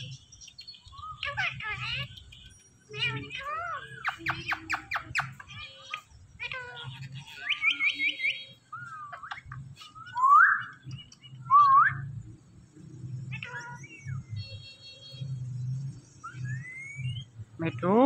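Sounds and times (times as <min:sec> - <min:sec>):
parakeets chirping: 0:00.0 - 0:18.0
loud rising whistled calls: 0:16.2 - 0:17.3.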